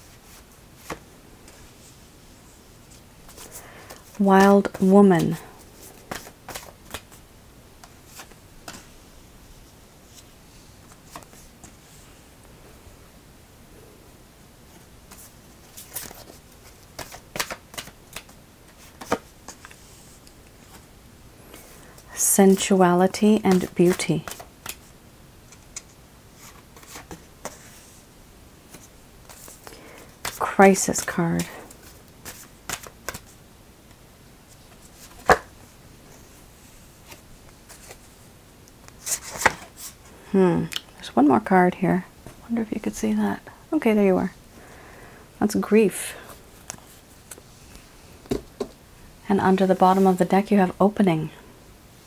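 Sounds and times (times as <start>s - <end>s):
cards clicking and snapping: 17.0s - 18.4s.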